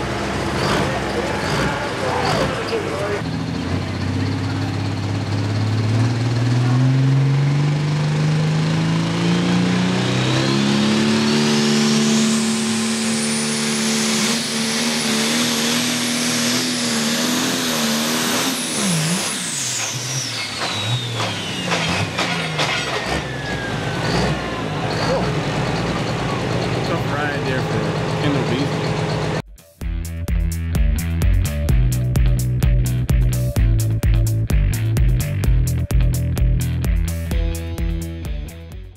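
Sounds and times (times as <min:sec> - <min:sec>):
tractor engine revving: 0:00.0 - 0:29.5
turbocharger whine: 0:00.0 - 0:29.5
engine pops and knocks: 0:20.6 - 0:23.3.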